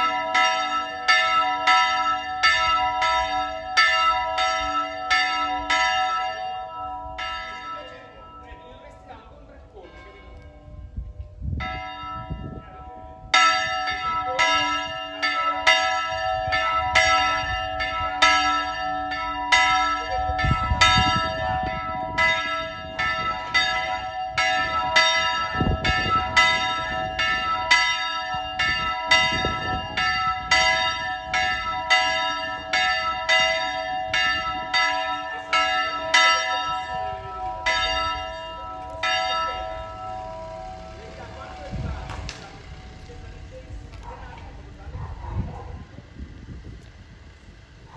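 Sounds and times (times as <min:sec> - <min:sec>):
church bells ringing: 0:00.0 - 0:46.0.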